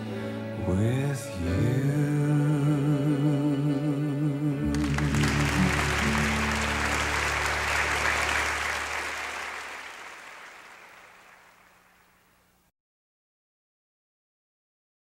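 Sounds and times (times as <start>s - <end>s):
sustained music chord: 4.7s - 8.8s
audience applause: 4.7s - 12.1s.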